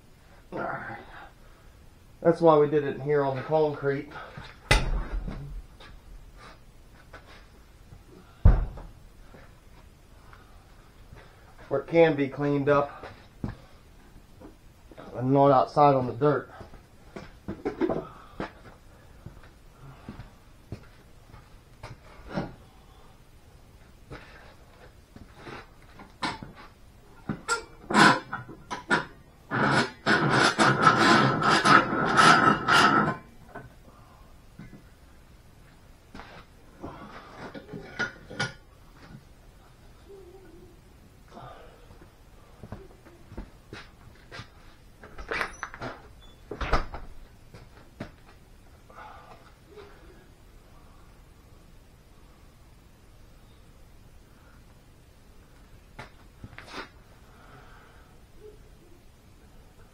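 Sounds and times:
rapid metal scraping strokes: 29.5s - 33.2s.

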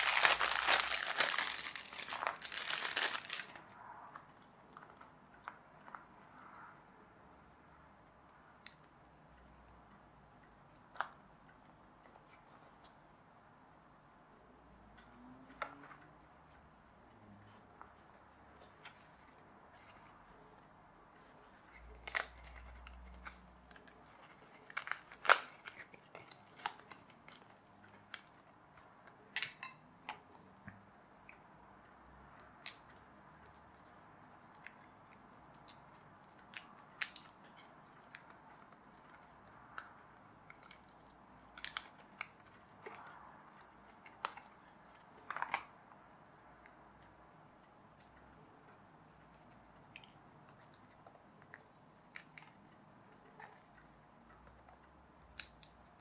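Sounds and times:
card pieces snapping: 0.0s - 3.6s.

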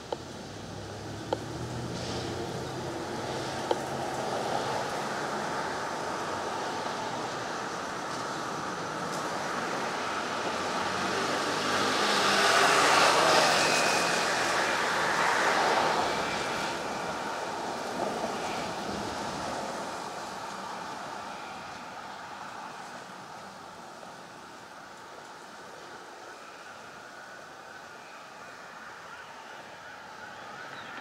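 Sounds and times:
street traffic: 0.0s - 31.0s
car passing close by: 9.6s - 20.5s.

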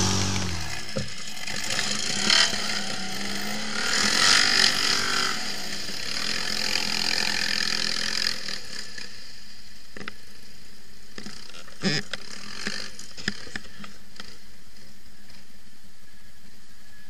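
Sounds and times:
quad bike engine revving: 0.0s - 9.2s, 11.2s - 13.4s.

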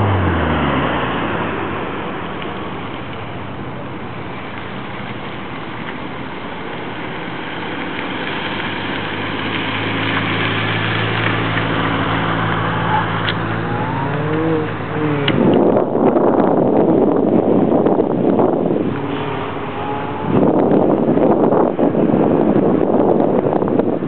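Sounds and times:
car engine revving: 0.0s - 5.7s, 7.6s - 22.9s
wind rushing over microphone: 6.2s - 24.0s.

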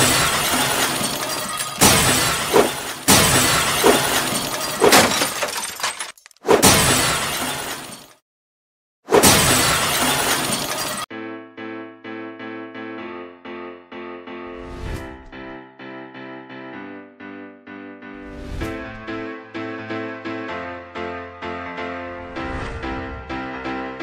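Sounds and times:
shattering burst effects: 0.0s - 5.4s
soft piano music: 11.1s - 14.6s, 18.8s - 22.2s.

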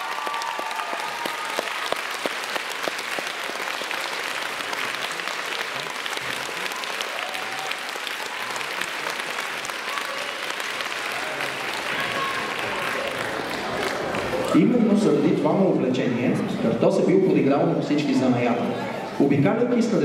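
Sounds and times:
audience applauding: 0.0s - 14.5s
faint crowd voices: 0.0s - 20.0s.

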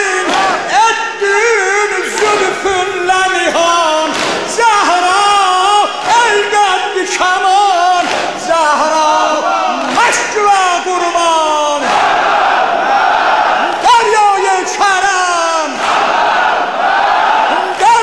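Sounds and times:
man singing a lament: 0.0s - 11.9s.

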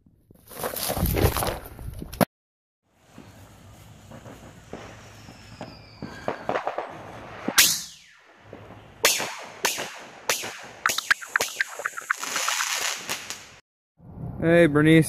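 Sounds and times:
fireworks crackling: 2.9s - 13.6s
fireworks bang: 4.0s - 13.6s.

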